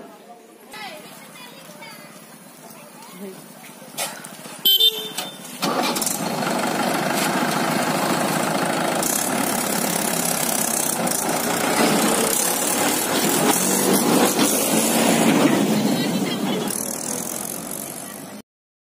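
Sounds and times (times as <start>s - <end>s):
tractor diesel engine running: 4.7s - 18.4s.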